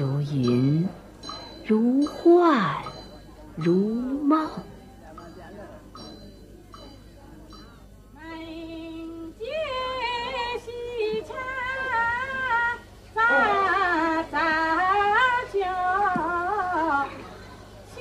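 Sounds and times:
woman singing unaccompanied: 0:00.0 - 0:01.0, 0:01.6 - 0:02.9, 0:03.6 - 0:04.8, 0:08.2 - 0:17.2.

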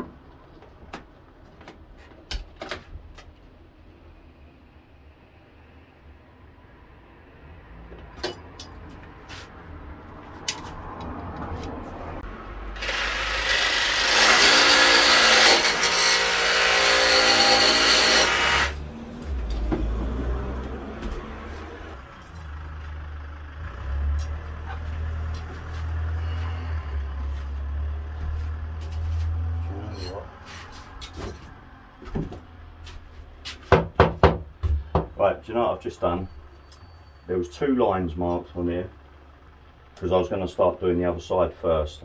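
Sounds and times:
jigsaw cutting aluminium: 0:12.7 - 0:18.8.

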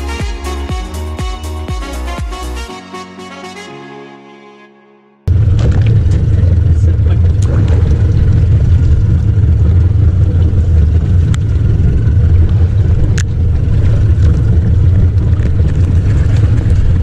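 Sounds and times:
boat engine rumbling: 0:05.3 - 0:17.0.

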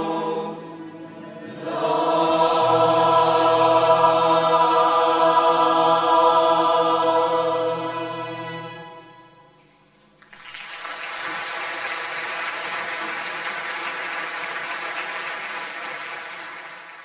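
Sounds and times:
choir holding a chord: 0:00.0 - 0:09.4
audience applause: 0:10.2 - 0:17.0.

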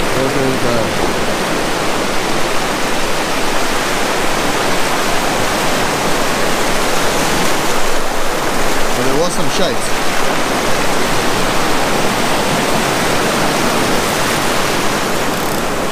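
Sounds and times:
surf breaking on rocky shore: 0:00.0 - 0:15.9.

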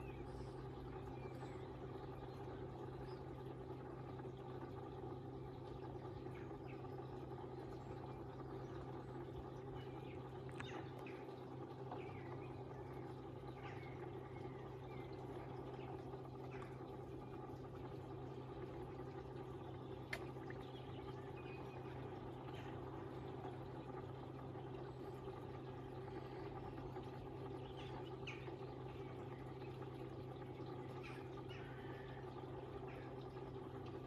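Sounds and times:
low hum: 0:00.0 - 0:34.0
faint bird chirps: 0:05.8 - 0:18.8, 0:24.4 - 0:33.5.

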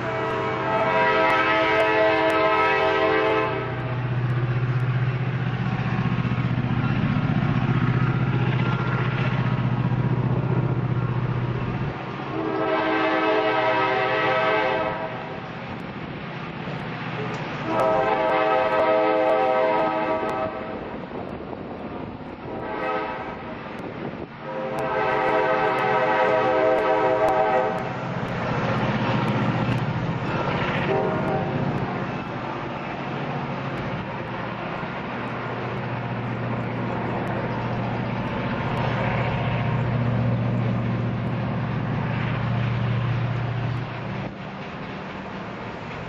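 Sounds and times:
train air horn: 0:00.0 - 0:04.0, 0:12.3 - 0:15.4, 0:17.6 - 0:20.8, 0:22.5 - 0:23.5, 0:24.4 - 0:27.9, 0:30.6 - 0:32.0
freight cars rolling: 0:00.0 - 0:46.0
locomotive engine rumbling: 0:00.0 - 0:46.0.

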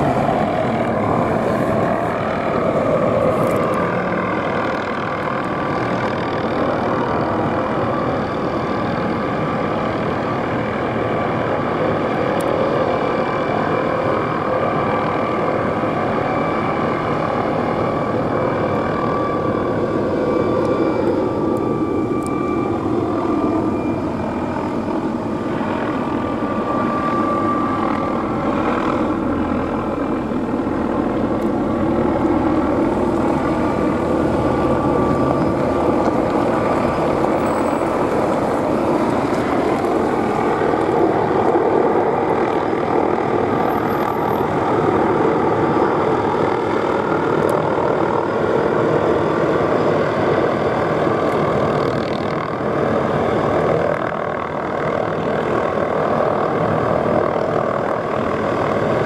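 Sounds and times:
helicopter in flight: 0:00.0 - 0:59.0
turbine whine: 0:00.0 - 0:59.0.

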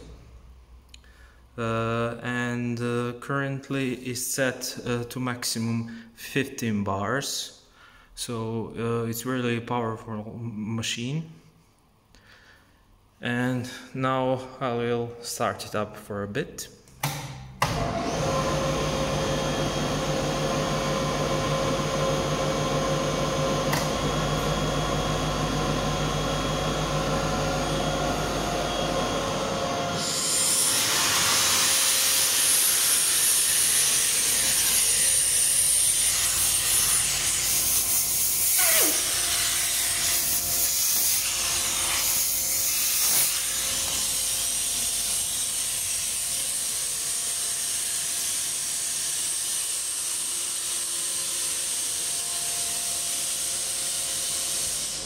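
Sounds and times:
air compressor humming: 0:17.0 - 0:48.8
compressed air hissing from hose: 0:36.1 - 0:44.6.

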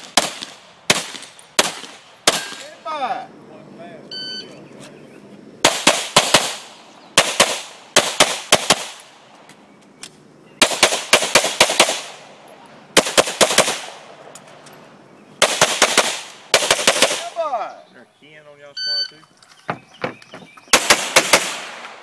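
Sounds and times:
pistol shots: 0:00.0 - 0:02.8, 0:05.6 - 0:09.1, 0:10.6 - 0:12.2, 0:13.0 - 0:14.1, 0:15.4 - 0:17.4, 0:20.7 - 0:22.0.

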